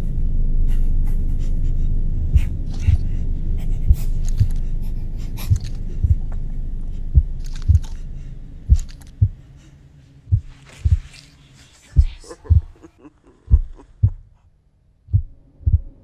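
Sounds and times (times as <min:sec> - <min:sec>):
low rumbling drone: 0:00.0 - 0:12.8, 0:13.4 - 0:16.0
heartbeat thumps: 0:01.7 - 0:04.7, 0:05.3 - 0:08.0, 0:08.6 - 0:09.5, 0:10.3 - 0:11.2, 0:12.0 - 0:12.9, 0:13.5 - 0:14.4, 0:15.1 - 0:16.0.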